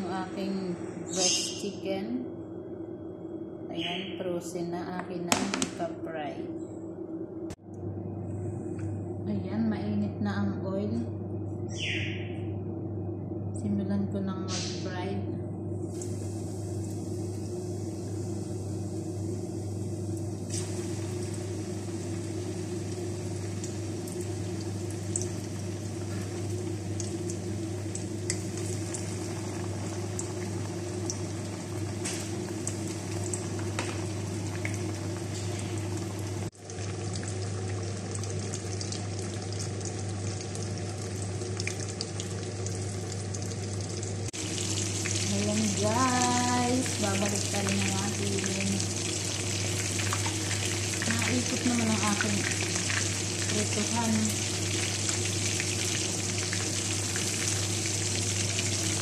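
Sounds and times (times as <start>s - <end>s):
low steady hum: 0.0s - 59.0s
chicken deep-frying in oil: 15.9s - 59.0s
oil pops and crackles: 32.0s - 35.6s.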